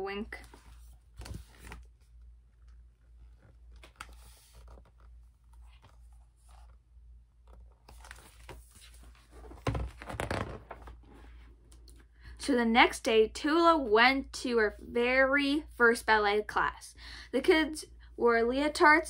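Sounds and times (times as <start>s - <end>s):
paper rustling: 0.4s - 11.4s.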